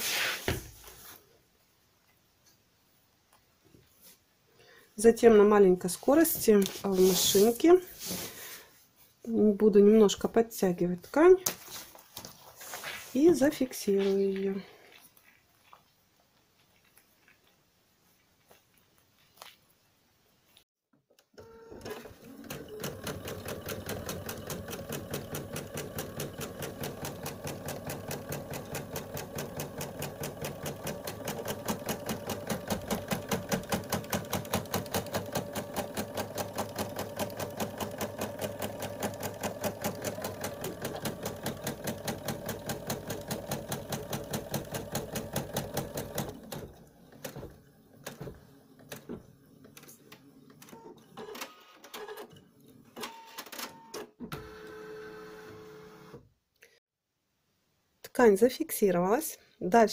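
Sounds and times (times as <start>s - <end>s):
embroidery machine stitching: 21.4s - 52.4s.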